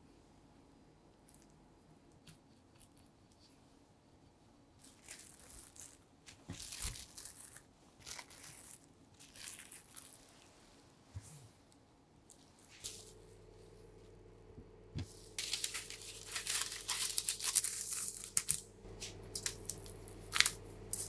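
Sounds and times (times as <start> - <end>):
cling film crinkling: 4.8 - 10.5, 15.0 - 21.0.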